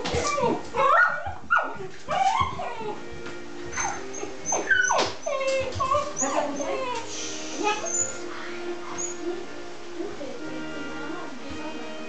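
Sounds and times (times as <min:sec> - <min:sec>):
dog whining and yipping: 0:00.1 - 0:03.1, 0:03.7 - 0:09.3.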